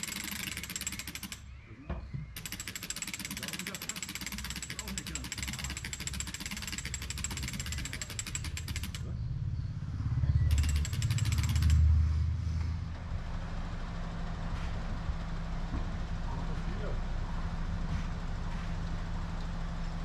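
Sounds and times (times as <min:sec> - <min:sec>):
fast even machine rattle: 0:00.0 - 0:01.4, 0:02.4 - 0:09.1, 0:10.4 - 0:12.0
low engine rumble: 0:06.8 - 0:20.0.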